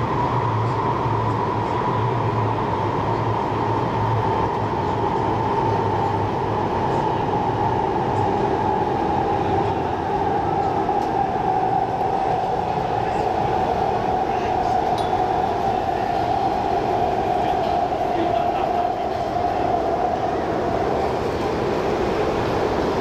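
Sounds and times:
train rumble: 0:00.0 - 0:23.0.

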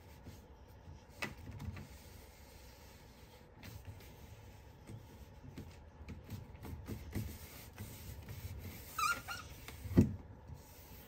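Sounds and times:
rubber gasket rubbing: 0:04.8 - 0:10.0
rubber squeak: 0:08.5 - 0:10.0.

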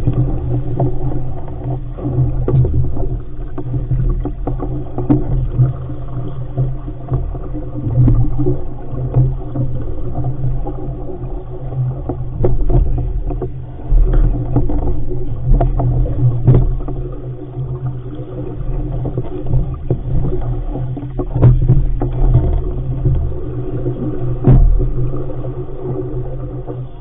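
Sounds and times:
low wind rumble: 0:00.0 - 0:27.0
water rushing along hull: 0:00.0 - 0:27.0
waves thumping hull: 0:00.0 - 0:27.0.

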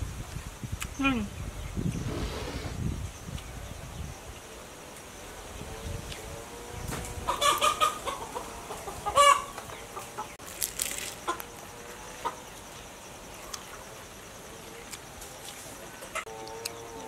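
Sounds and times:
chickens clucking: 0:06.9 - 0:10.4, 0:11.1 - 0:12.5.

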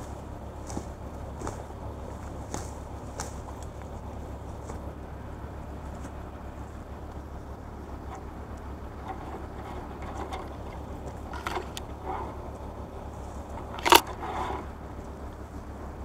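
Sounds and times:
crane engine rumbling: 0:00.0 - 0:16.0
faint knocks and clicks: 0:08.1 - 0:12.4.

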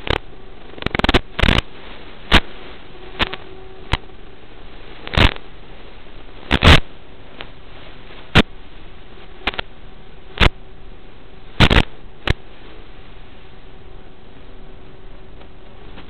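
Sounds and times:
sharp crackling pops: 0:00.0 - 0:10.6, 0:11.4 - 0:12.9
steady radio hiss: 0:00.0 - 0:16.0.

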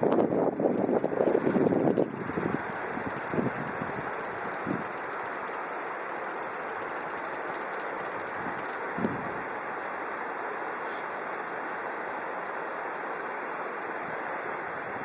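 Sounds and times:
cicada buzzing: 0:00.0 - 0:15.0.

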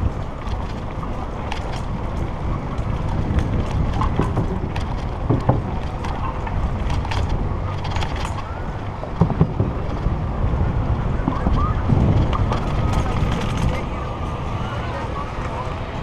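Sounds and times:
bike rolling over wooden ties: 0:00.0 - 0:16.0
wind buffeting microphone: 0:00.0 - 0:16.0
clicks and knocks: 0:03.3 - 0:08.5.

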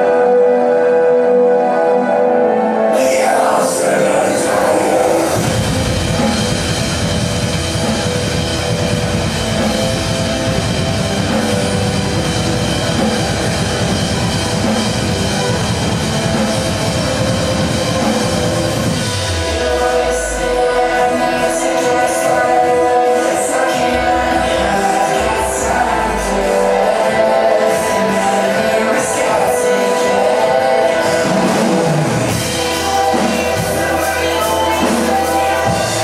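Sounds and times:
electronic heavy metal backing track: 0:00.0 - 0:36.0
drum kit played hard: 0:03.0 - 0:36.0
deep falling bass tone: 0:05.2 - 0:21.6.

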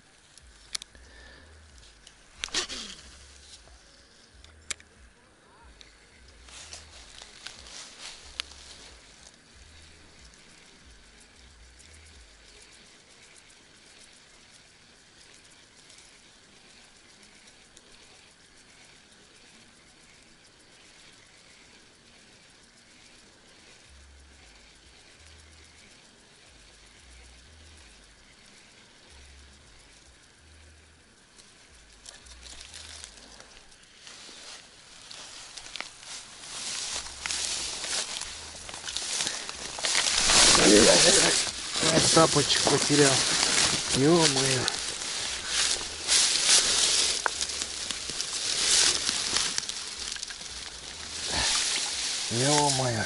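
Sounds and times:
crackling hiss of outdoor ambience: 0:00.0 - 0:53.0
reeds and grass rustling: 0:00.0 - 0:53.0
small scattered ticks: 0:00.0 - 0:53.0
low rumbles: 0:35.0 - 0:53.0.

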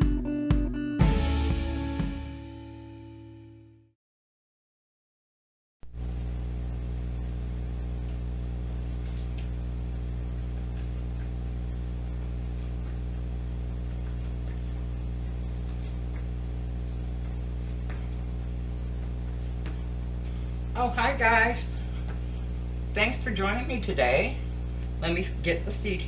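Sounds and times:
electrical mains hum: 0:05.8 - 0:26.0.

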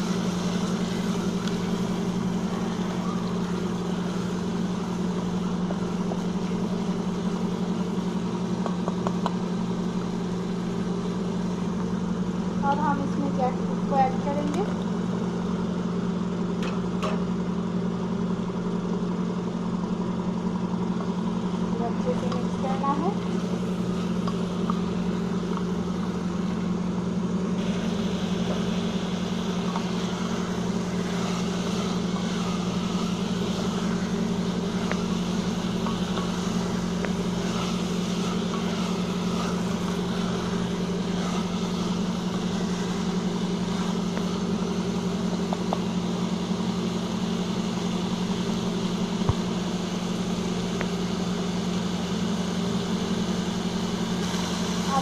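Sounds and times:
frying sizzle: 0:00.0 - 0:17.6, 0:18.2 - 0:55.0
machine hum: 0:00.0 - 0:55.0.

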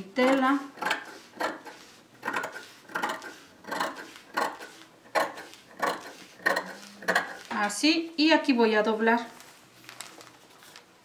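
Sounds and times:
metal shears snipping fabric: 0:00.2 - 0:07.6.

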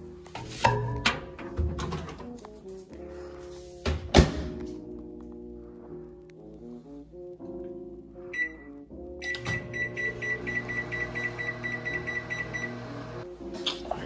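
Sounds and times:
soft lo-fi music: 0:00.0 - 0:11.0, 0:12.0 - 0:14.0
electronic timer beeping: 0:08.3 - 0:12.8.

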